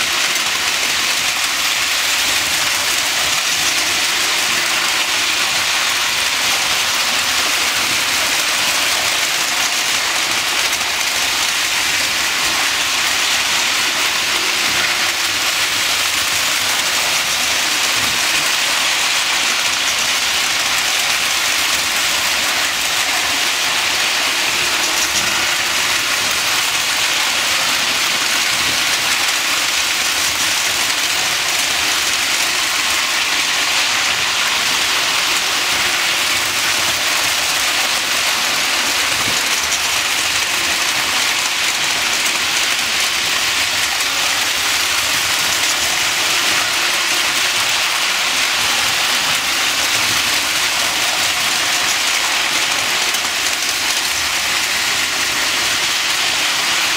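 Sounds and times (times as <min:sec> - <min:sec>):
toy trains clattering on rails: 0:00.0 - 0:56.9.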